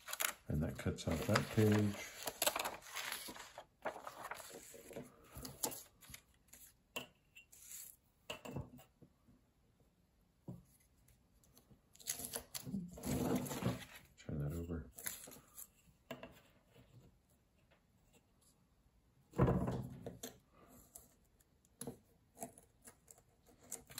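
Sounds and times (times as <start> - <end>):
magazine pages rustling: 0.0 - 6.7.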